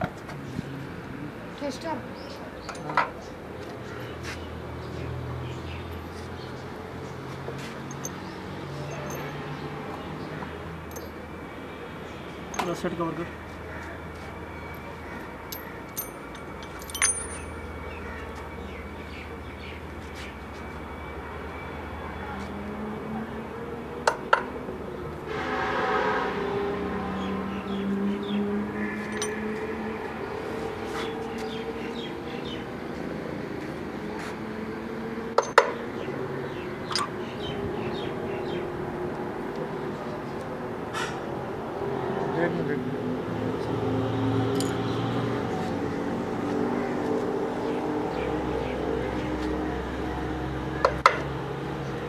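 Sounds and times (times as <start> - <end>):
metallic clinks of engine parts: 7.8 - 8.3, 8.9 - 9.4, 10.8 - 11.2, 12.5 - 12.8, 14.7 - 17.7, 29.0 - 29.4, 35.4 - 35.7, 36.9 - 37.1, 44.5 - 45.0.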